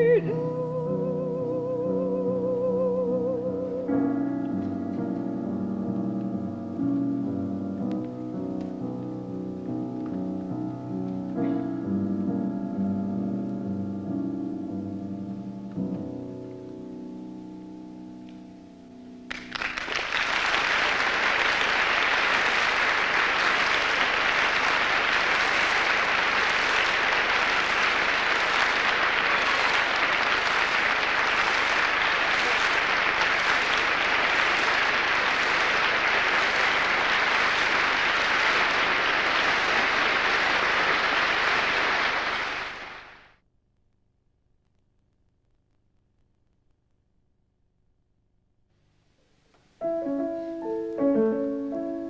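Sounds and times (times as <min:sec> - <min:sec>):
audience applause: 0:19.3 - 0:43.3.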